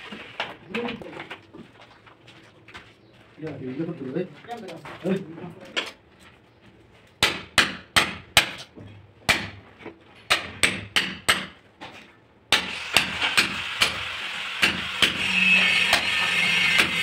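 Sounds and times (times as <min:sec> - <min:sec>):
hammer striking steel chisel: 0:10.3 - 0:11.6, 0:12.5 - 0:14.0, 0:14.6 - 0:17.0.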